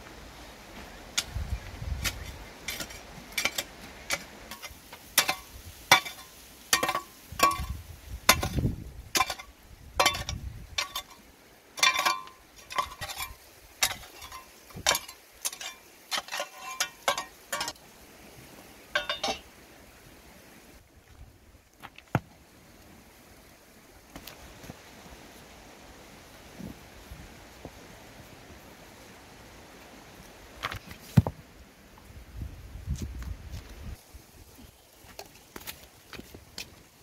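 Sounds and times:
metal hoe striking stony ground: 0:02.0 - 0:11.2, 0:11.8 - 0:17.8, 0:18.9 - 0:19.5, 0:30.6 - 0:31.4.

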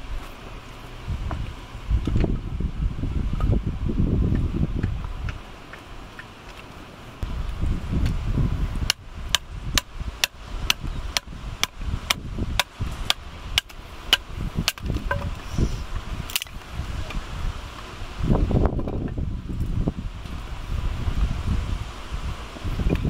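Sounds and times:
wind rumble on microphone: 0:00.0 - 0:06.2, 0:07.1 - 0:23.0
hatchet striking wood: 0:08.8 - 0:15.4.

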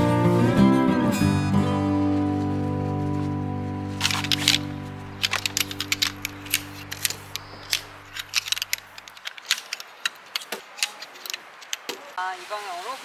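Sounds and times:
background music: 0:00.0 - 0:09.0
metal poles clacking and snapping: 0:04.0 - 0:12.1.

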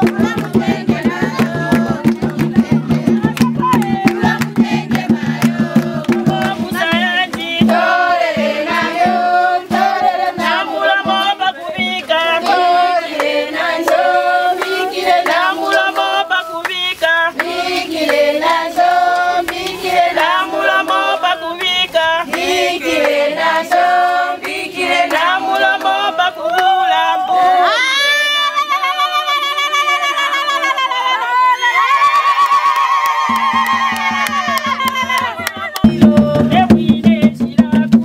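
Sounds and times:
steady beat: 0:00.0 - 0:16.3, 0:33.2 - 0:38.0
women singing together: 0:00.0 - 0:32.6, 0:33.3 - 0:38.0.

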